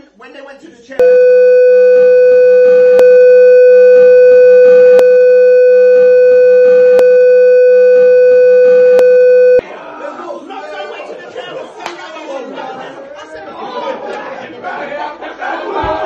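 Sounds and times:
electronic bleep tone: 1.0s - 9.6s.

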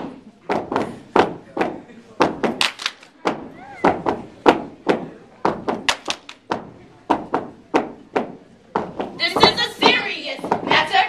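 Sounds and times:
stomps claps and body slaps: 0.5s - 9.1s.

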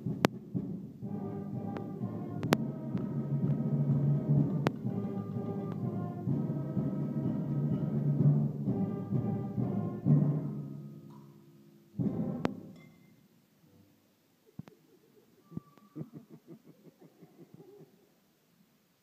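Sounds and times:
brass band playing: 0.0s - 11.1s, 12.0s - 12.8s
pots struck as percussion: 3.4s - 6.5s, 12.0s - 13.2s.

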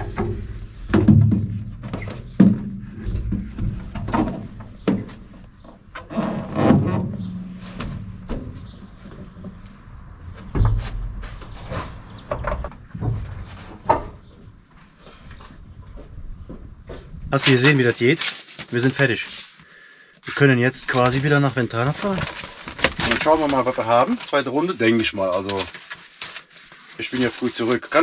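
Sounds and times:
steel racks clanking and thudding: 0.0s - 9.6s, 10.2s - 14.6s.

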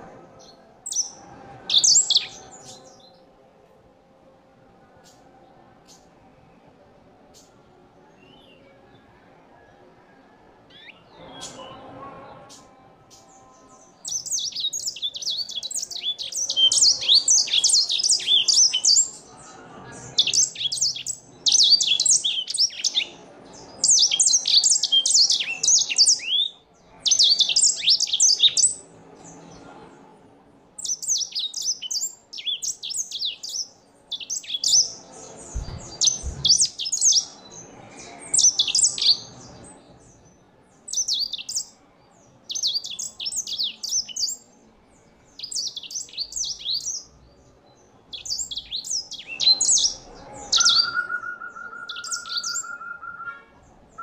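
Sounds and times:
finch singing high twittering: 14.0s - 19.2s, 20.2s - 23.1s, 30.8s - 37.5s, 40.9s - 41.7s, 45.4s - 47.1s, 48.1s - 51.0s, 51.9s - 52.8s.

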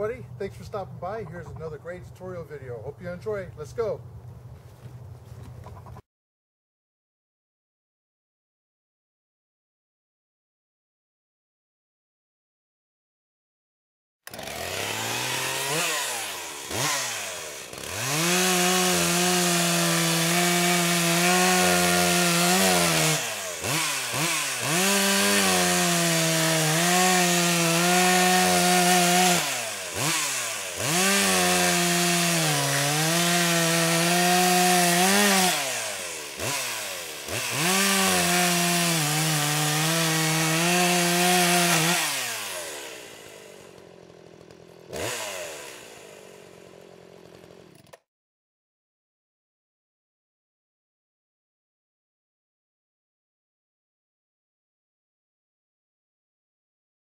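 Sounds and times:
chainsaw revving: 14.3s - 48.1s.

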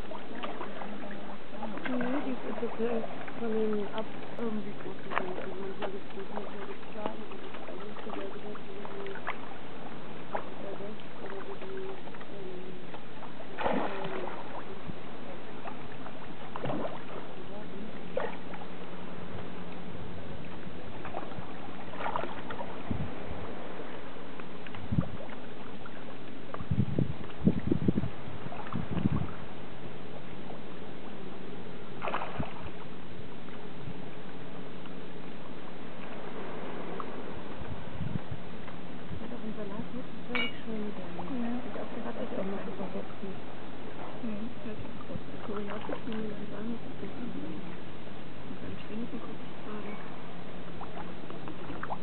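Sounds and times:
faint low hum: 0.0s - 52.0s
seawater lapping: 0.0s - 52.0s
waterside background noise: 0.0s - 52.0s
fish splashing at surface: 13.6s - 14.7s, 32.0s - 32.7s.

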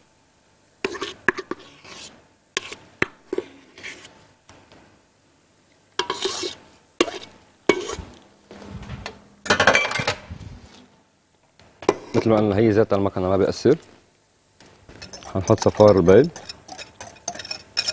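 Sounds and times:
spatula scraping metal bowl: 0.8s - 4.2s, 6.0s - 8.7s, 11.8s - 12.4s, 14.9s - 17.9s.

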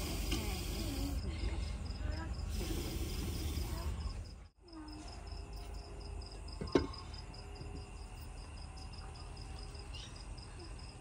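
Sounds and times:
cricket chirping: 0.0s - 11.0s.

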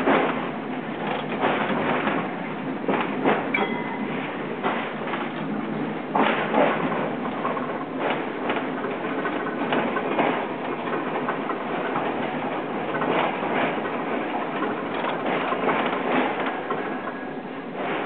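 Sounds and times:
tram running on rails: 0.0s - 18.0s
wheels knocking: 0.0s - 18.0s.

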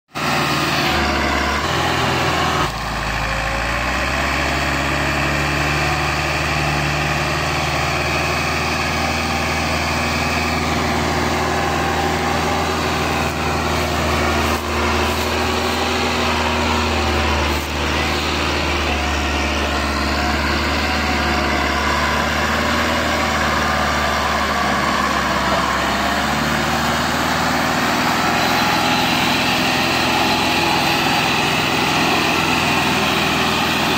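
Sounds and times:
tractor diesel engine under load: 0.1s - 33.9s.

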